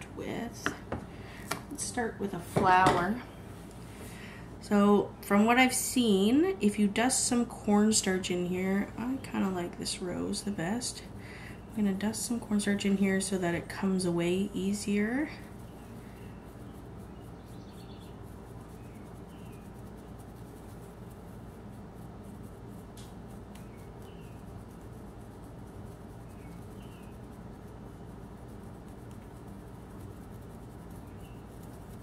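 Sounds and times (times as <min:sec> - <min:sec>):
low room hum: 0:00.0 - 0:32.0
paintbrush scratching: 0:05.6 - 0:32.0.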